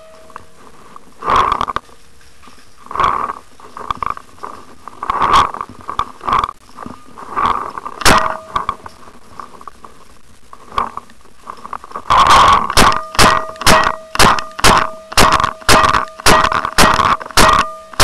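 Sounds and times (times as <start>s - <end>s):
paintball marker shots: 12.8s - 18.0s.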